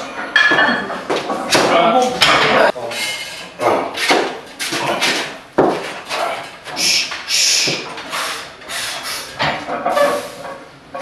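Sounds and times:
hissing breaths: 6.7s - 10.5s.

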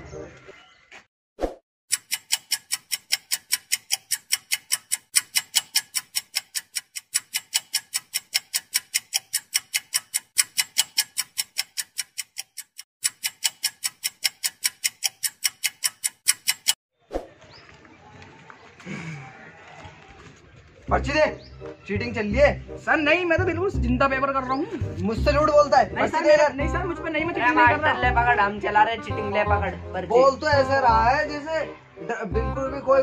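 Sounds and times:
clock ticking: 1.9s - 16.8s, 25.0s - 30.9s.

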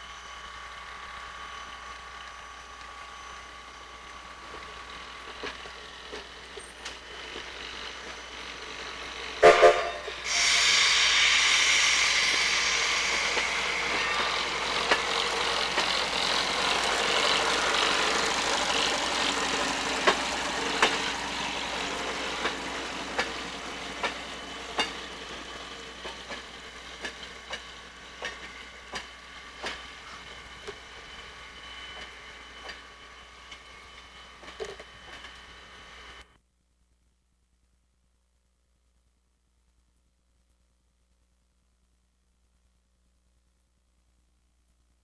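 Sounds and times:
steam whistle toots: 9.4s - 18.0s
steam hissing: 10.0s - 32.8s.

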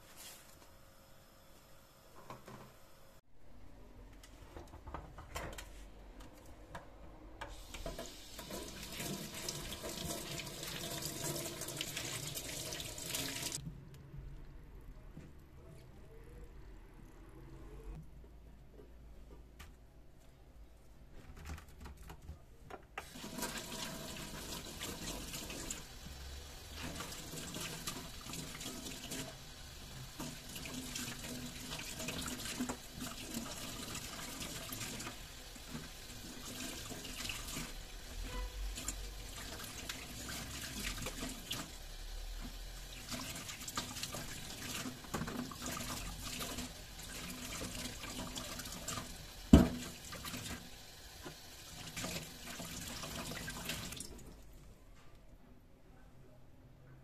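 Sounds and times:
tap running into metal sink: 49.5s - 50.6s.

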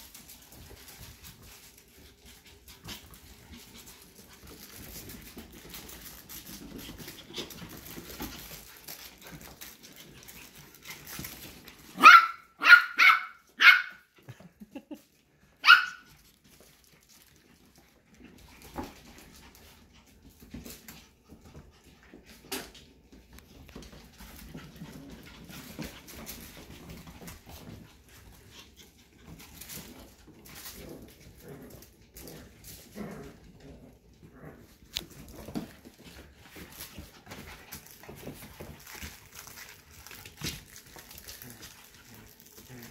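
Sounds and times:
paws scuffling on floor: 0.0s - 42.9s
puppies barking high-pitched: 12.0s - 14.1s, 15.6s - 16.1s.

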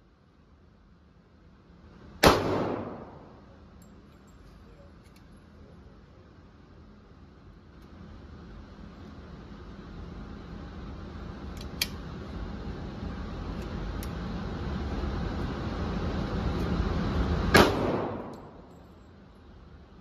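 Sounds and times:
steady low rumble: 0.0s - 20.0s
pistol shot echoing: 2.2s - 3.4s, 17.6s - 18.6s
pistol handling click: 11.5s - 12.0s, 18.2s - 18.5s.

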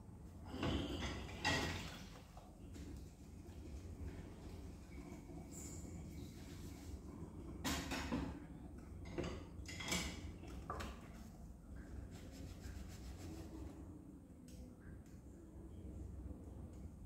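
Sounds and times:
hands rustling and scraping pot: 11.8s - 13.8s.

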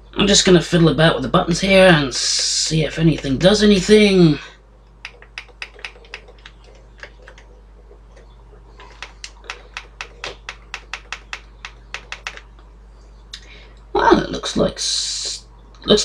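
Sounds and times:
push buttons clicking: 5.0s - 7.4s, 8.9s - 12.5s.

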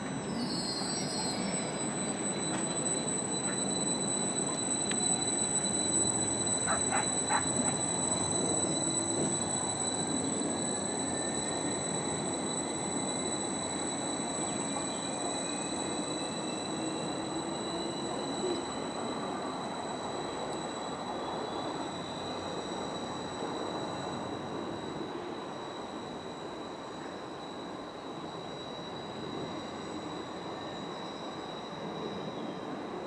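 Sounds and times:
short high squeaks: 0.0s - 24.9s
train rumbling: 0.0s - 33.0s.

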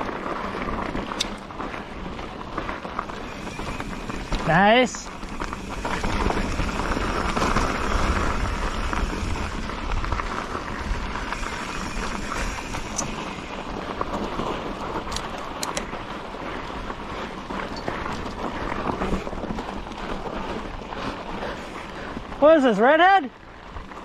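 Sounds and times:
wind on microphone: 0.0s - 22.4s
bike tyres rolling on dirt trail: 0.0s - 24.0s
sharp clicks: 15.1s - 15.9s.

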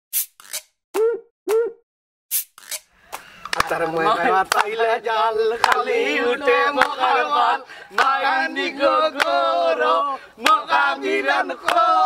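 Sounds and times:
sharp hand claps: 3.5s - 4.7s, 5.6s - 5.8s, 6.8s - 7.0s, 9.2s - 9.4s, 10.4s - 10.6s, 11.6s - 11.9s
men singing a chant: 3.6s - 12.0s.

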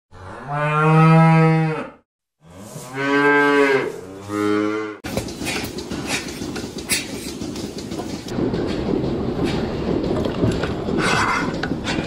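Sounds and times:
cow mooing: 0.1s - 5.0s.

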